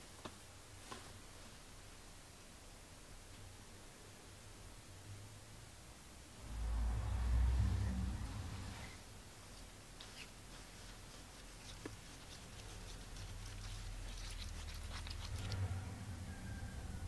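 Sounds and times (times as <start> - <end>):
low hum: 6.1 - 9.4
stick scraping paper cup: 10.0 - 15.6.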